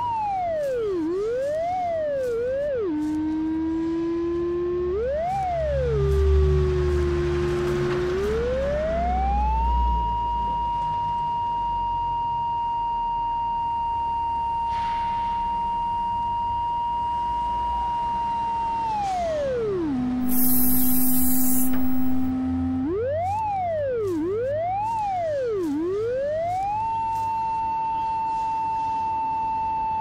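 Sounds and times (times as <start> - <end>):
electronic beeping tone: 20.2 - 22.3
spray paint hiss: 20.2 - 22.3.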